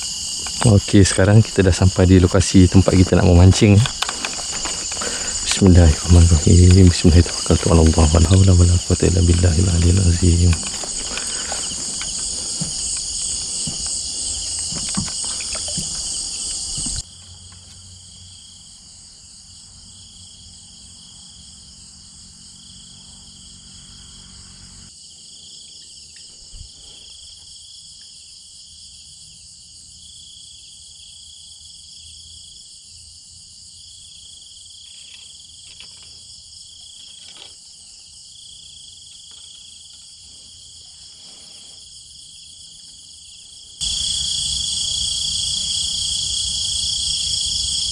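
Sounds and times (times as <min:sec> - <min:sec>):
crickets and insects trilling: 0:00.0 - 0:47.9
rustling and handling knocks: 0:02.7 - 0:17.0.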